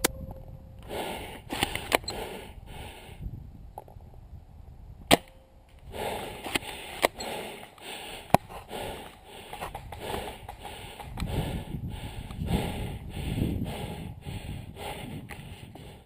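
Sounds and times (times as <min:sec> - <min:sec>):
person breathing in quick puffs: 0:00.8 - 0:03.3, 0:05.9 - 0:16.0
sharp clicks: 0:01.5 - 0:02.2.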